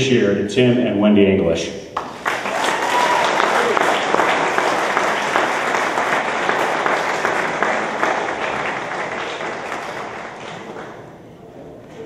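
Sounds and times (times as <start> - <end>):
audience applauding: 2.0 - 11.1.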